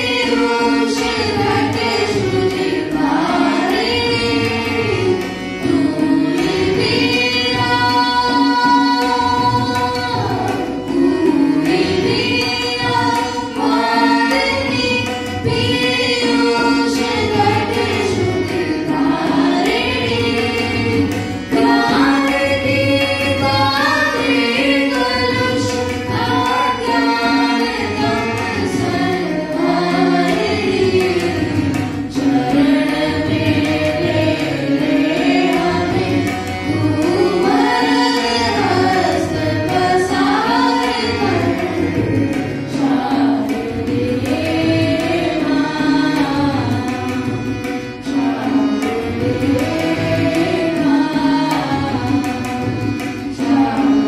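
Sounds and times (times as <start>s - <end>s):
girls singing: 0.0s - 47.3s, 48.0s - 52.2s, 53.3s - 54.0s
harmonium drone: 0.0s - 54.0s
tabla rhythm: 0.0s - 54.0s.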